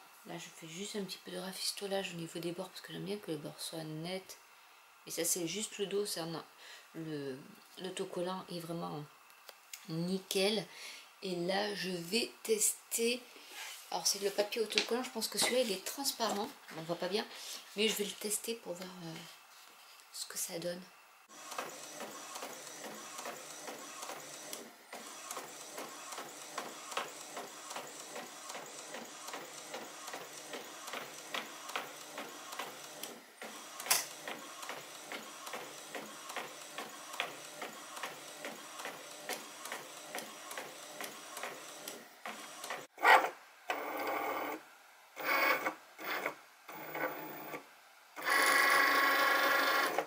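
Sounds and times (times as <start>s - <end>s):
stop-start mechanical sounds: 21.3s - 42.9s, 45.2s - 47.6s
inkjet printer printing: 21.3s - 44.6s, 45.2s - 47.6s, 48.2s - 50.0s.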